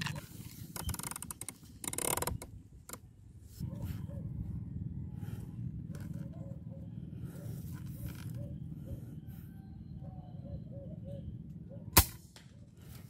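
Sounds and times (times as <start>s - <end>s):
steady low rumble: 3.2s - 13.0s.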